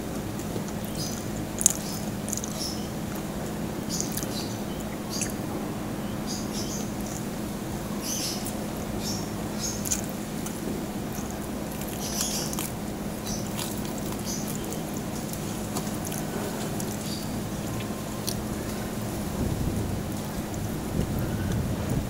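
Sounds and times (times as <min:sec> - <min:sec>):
chewing crunchy crackling: 0:00.0 - 0:05.4, 0:08.0 - 0:19.0
steady low hum: 0:00.0 - 0:22.0
wet mouth clicks: 0:04.0 - 0:04.4, 0:09.8 - 0:12.7.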